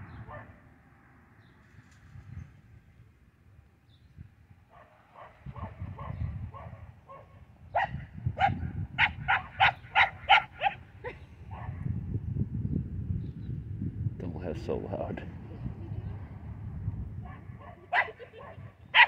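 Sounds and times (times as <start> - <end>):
dog barking: 0.2 - 0.6, 4.7 - 10.8, 11.5 - 11.8, 17.2 - 19.0.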